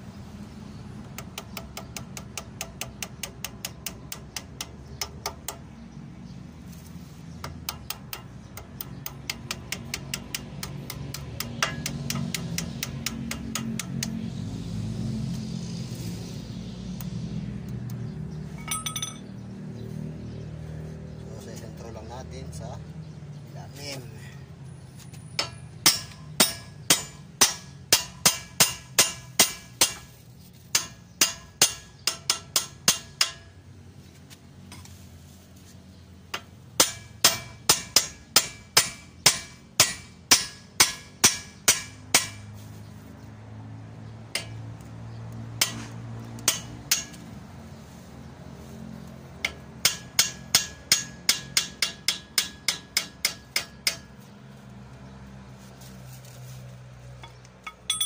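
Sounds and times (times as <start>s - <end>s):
hammer striking metal: 7.6s - 14.2s, 18.6s - 19.3s, 25.4s - 30.1s, 30.7s - 33.5s, 36.3s - 42.5s, 45.6s - 47.3s, 49.4s - 54.2s, 57.6s - 58.0s.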